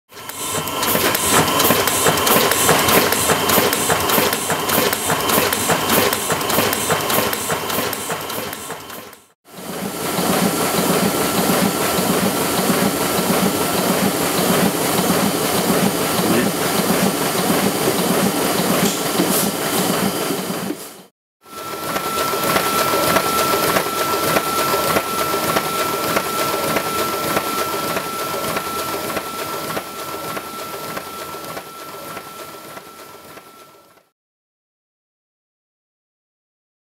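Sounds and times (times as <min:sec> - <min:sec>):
printing press clattering: 0:00.6 - 0:09.1.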